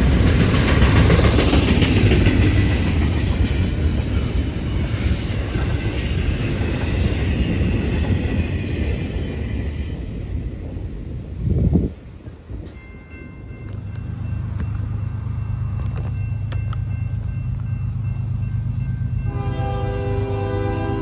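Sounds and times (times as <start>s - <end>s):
diesel locomotive rumble: 0.0s - 21.0s
train horn: 19.2s - 21.0s.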